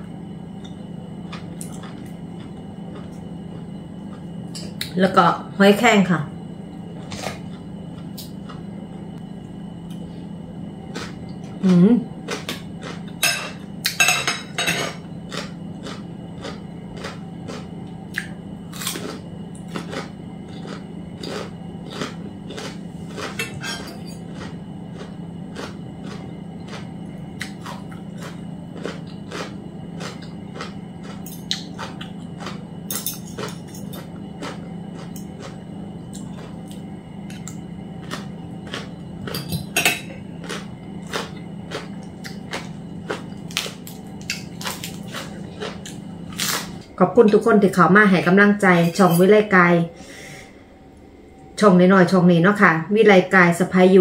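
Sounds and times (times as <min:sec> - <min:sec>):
steady low hum: 0:00.0 - 0:54.0
chewing: 0:00.6 - 0:04.3, 0:07.0 - 0:08.7, 0:15.0 - 0:23.6, 0:24.2 - 0:39.8, 0:40.4 - 0:46.8.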